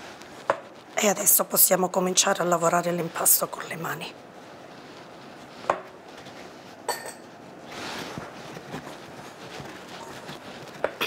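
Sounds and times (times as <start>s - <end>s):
dough squishing and rustling: 0.0s - 11.0s
clink against glass bowl: 6.9s - 7.2s.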